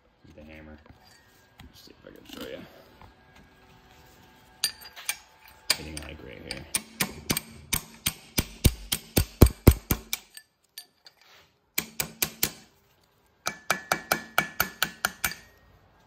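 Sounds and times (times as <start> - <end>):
hammer striking steel: 6.7 - 10.4, 11.8 - 12.7, 13.5 - 15.6.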